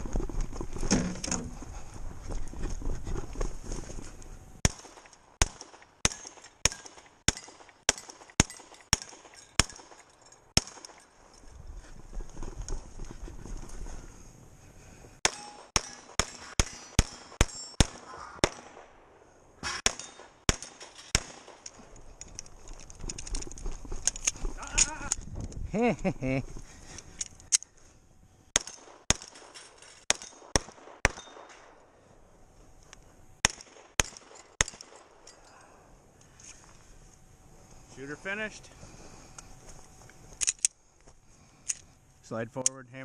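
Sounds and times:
pistol shots: 0:04.6 - 0:10.0, 0:10.6 - 0:11.0, 0:15.2 - 0:19.0, 0:19.6 - 0:21.7, 0:28.6 - 0:29.5, 0:30.1 - 0:31.8, 0:33.4 - 0:35.1
shooter rustling movement: 0:20.0 - 0:25.6, 0:28.6 - 0:30.6.

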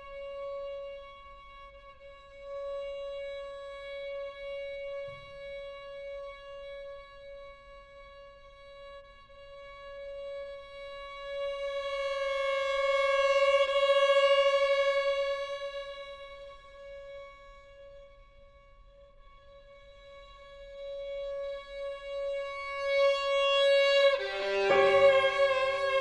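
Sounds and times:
violin holding a long high note: 0:11.6 - 0:16.7, 0:22.6 - 0:26.0.

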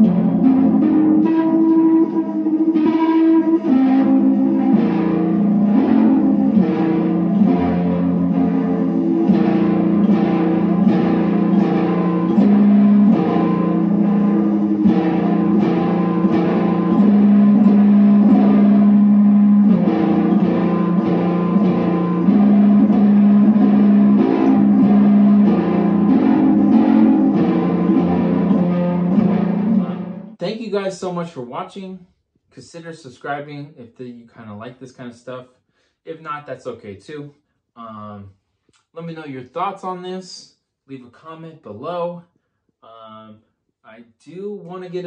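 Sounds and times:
electric kalimba plucked notes: 0:00.0 - 0:30.4
long ringing low notes: 0:00.0 - 0:30.5.

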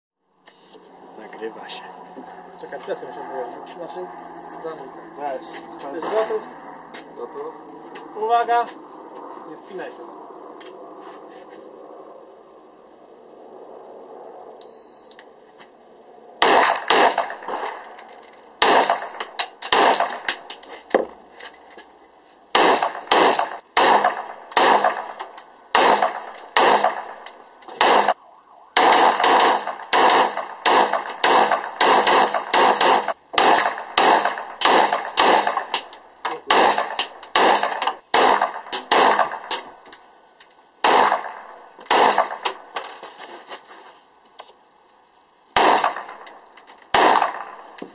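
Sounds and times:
short high beep: 0:14.6 - 0:15.2
rifle shots echoing: 0:16.4 - 0:18.0, 0:18.6 - 0:20.6, 0:22.5 - 0:28.2, 0:28.8 - 0:39.8, 0:40.8 - 0:42.6, 0:45.6 - 0:47.8.

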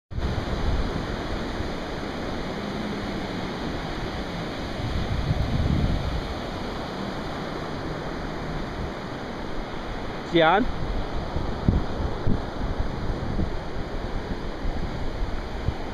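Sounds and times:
surf breaking on a beach: 0:00.1 - 0:15.9
wind rumbling on microphone: 0:00.1 - 0:15.9.

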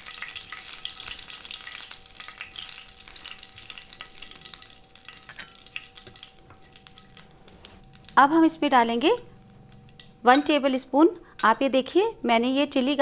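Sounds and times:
seeds crackling in hot oil: 0:00.0 - 0:10.1.

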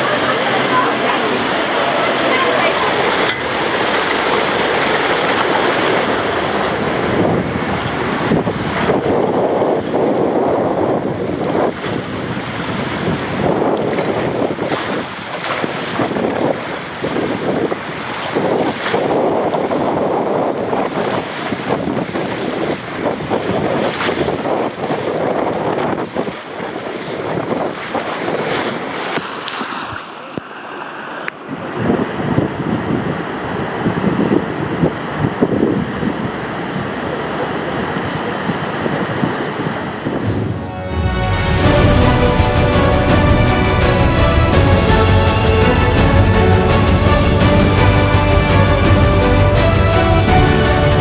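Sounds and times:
water rushing down a slide: 0:00.0 - 0:10.2, 0:11.0 - 0:40.3
wind buffeting microphone: 0:00.0 - 0:51.0.

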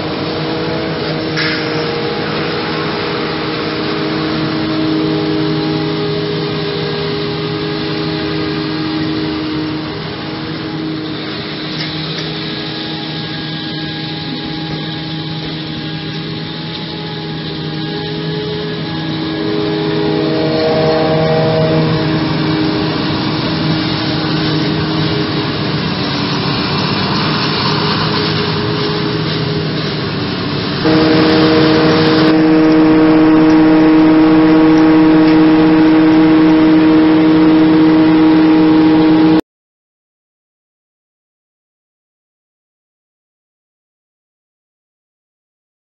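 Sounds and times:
forage harvester chopping corn: 0:00.0 - 0:06.7
hum of steady tones: 0:00.0 - 0:39.4
tractor driving past: 0:00.0 - 0:39.4.

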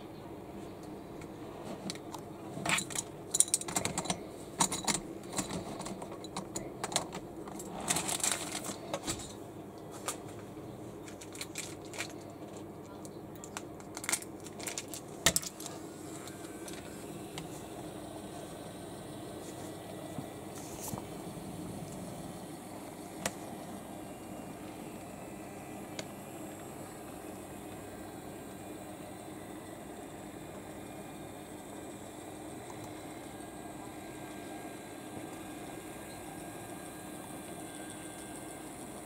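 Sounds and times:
faint steady hum: 0:00.0 - 0:39.0.

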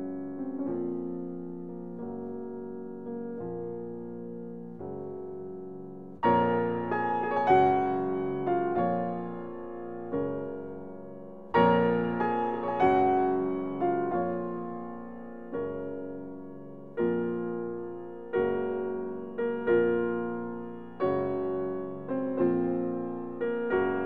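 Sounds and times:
gentle solo piano: 0:00.0 - 0:24.0.

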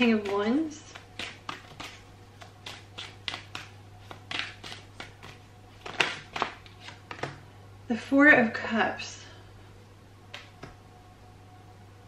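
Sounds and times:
cards being shuffled: 0:00.0 - 0:07.4.

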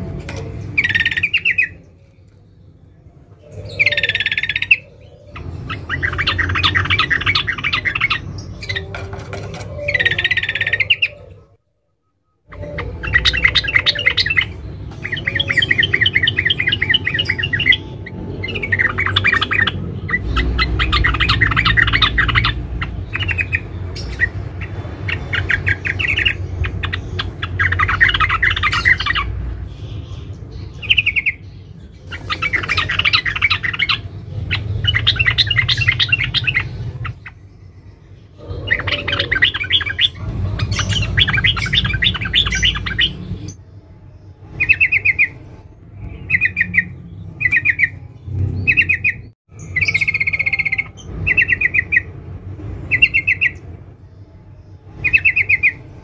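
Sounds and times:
bird chattering in trills: 0:00.0 - 0:02.0, 0:03.4 - 0:11.4, 0:12.4 - 0:37.6, 0:38.3 - 0:43.6.

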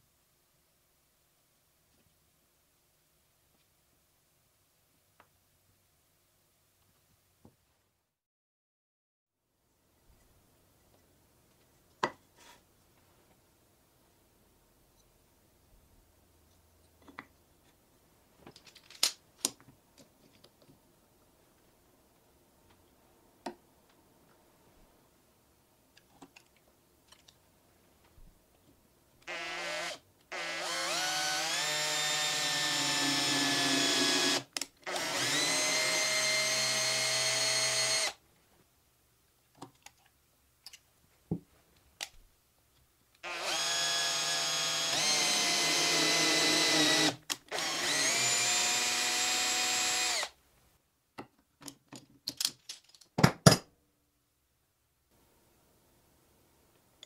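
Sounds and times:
electric drill boring into wood: 0:29.2 - 0:38.2, 0:43.2 - 0:50.4.

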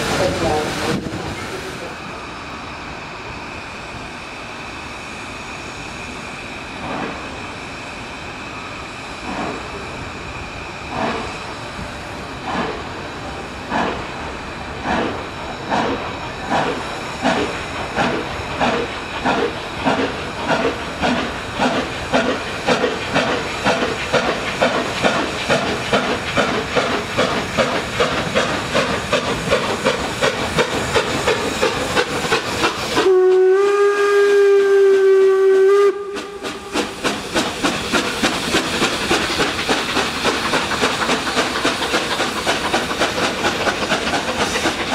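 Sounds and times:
hissing steam: 0:00.0 - 0:44.9
steam locomotive exhaust chuffs: 0:02.9 - 0:44.9
steam whistle long note: 0:33.0 - 0:36.8.

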